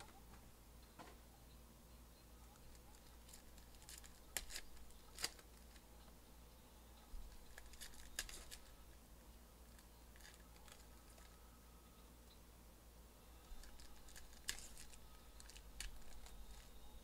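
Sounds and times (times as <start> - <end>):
foil wrapper crinkling and tearing: 3.0 - 5.8, 7.4 - 8.7, 13.6 - 16.7.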